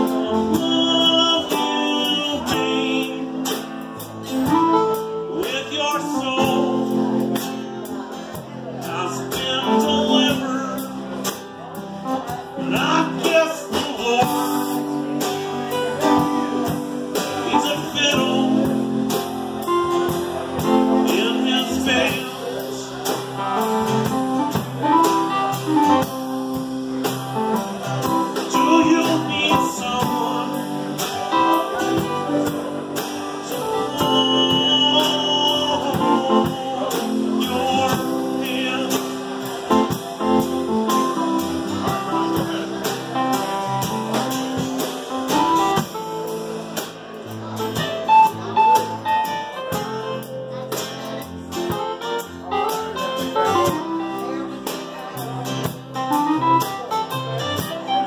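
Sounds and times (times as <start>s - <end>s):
man singing: 0.0s - 26.2s, 27.8s - 46.4s
drum kit with cymbals: 0.0s - 58.0s
electric keyboard: 0.0s - 58.0s
strummed acoustic guitar: 0.0s - 58.0s.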